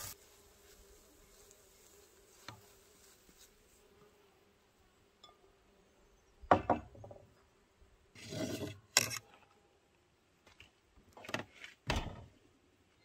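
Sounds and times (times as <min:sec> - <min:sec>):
scrape on wooden table: 0:08.2 - 0:09.2.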